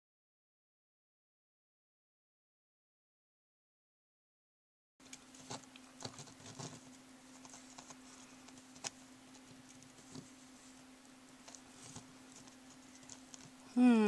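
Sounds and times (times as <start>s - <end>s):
steady low hum: 5.0s - 14.0s.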